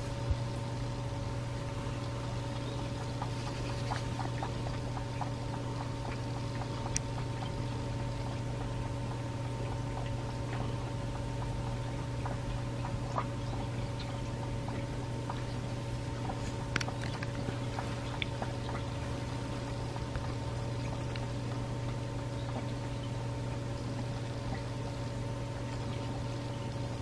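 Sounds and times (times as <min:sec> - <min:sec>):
low hum: 0:00.0 - 0:27.0
kittens suckling wet clicks: 0:16.2 - 0:18.9.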